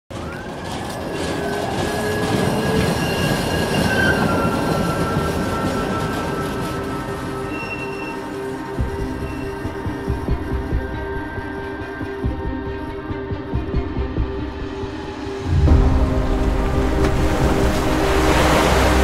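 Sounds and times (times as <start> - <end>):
train wheels squealing: 0.1 - 13.0.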